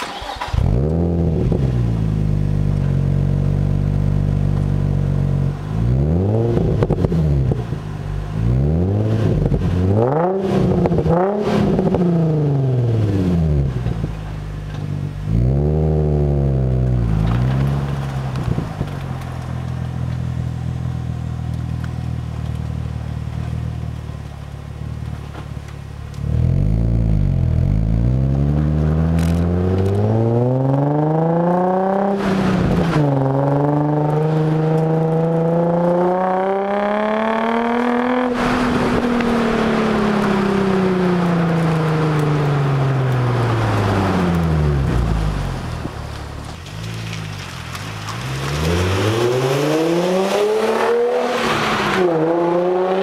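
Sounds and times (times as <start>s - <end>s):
car accelerating hard: 0.0s - 7.8s, 8.4s - 14.0s, 26.1s - 46.0s, 46.9s - 53.0s
car engine revving: 0.0s - 53.0s.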